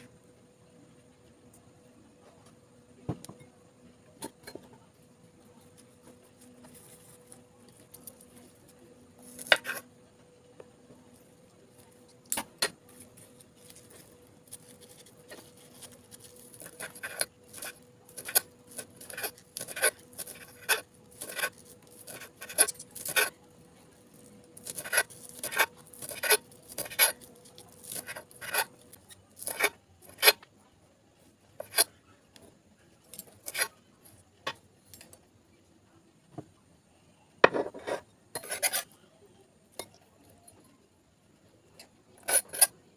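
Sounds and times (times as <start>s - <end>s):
knife chopping on stone countertop: 16.5s - 23.3s, 24.6s - 27.2s, 37.4s - 38.8s.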